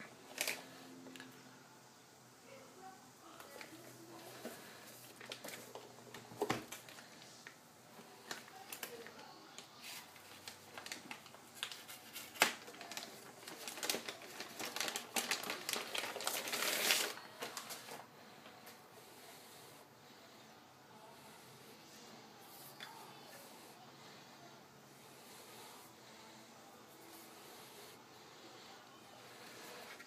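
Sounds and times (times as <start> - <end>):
plastic bag crinkling: 0.3 - 0.8, 9.8 - 18.1.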